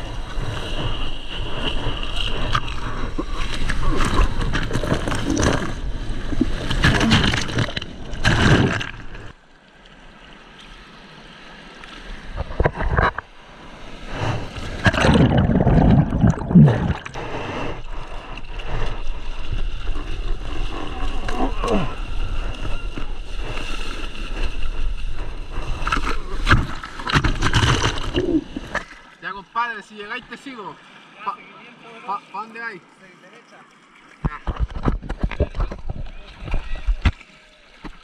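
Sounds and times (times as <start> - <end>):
muffled underwater rush: 0.0 - 9.4, 12.1 - 32.4
water splashing and churning: 0.0 - 38.0.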